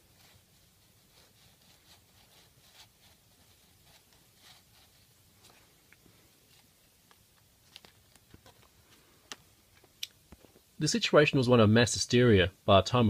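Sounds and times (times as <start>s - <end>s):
paper pages rustling: 6.4s - 9.4s.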